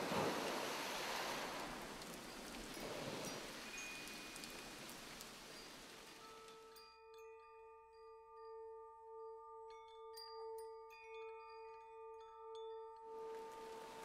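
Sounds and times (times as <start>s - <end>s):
rain-like hiss: 0.0s - 6.8s, 13.2s - 14.0s
soft spa music: 0.0s - 14.0s.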